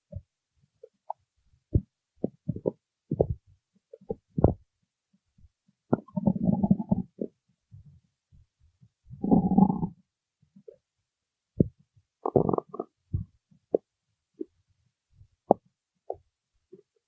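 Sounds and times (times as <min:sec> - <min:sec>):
stomach growling: 0:05.9 - 0:07.4, 0:09.2 - 0:10.0, 0:11.6 - 0:13.8.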